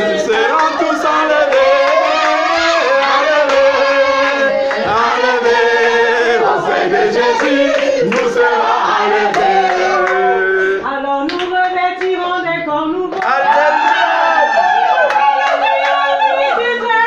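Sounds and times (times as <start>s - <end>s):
group singing and calling out: 0.0s - 17.0s
hand claps: 3.4s - 5.1s, 7.4s - 8.4s, 11.3s - 12.2s, 13.1s - 14.1s.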